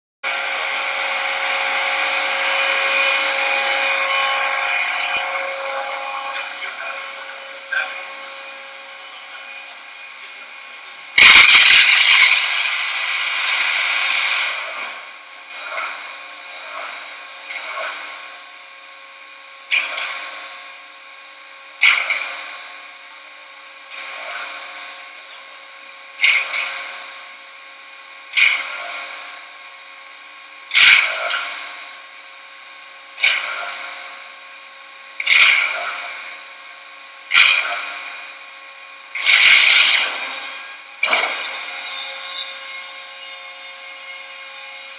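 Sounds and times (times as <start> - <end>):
welding machine crackling burst: 11.1 - 16.0, 21.8 - 22.7, 26.2 - 27.1, 28.3 - 29.4, 30.7 - 31.8, 33.2 - 34.1, 35.2 - 36.4, 37.3 - 38.2, 39.1 - 41.5
sharp arcing flashes: 11.2 - 14.7.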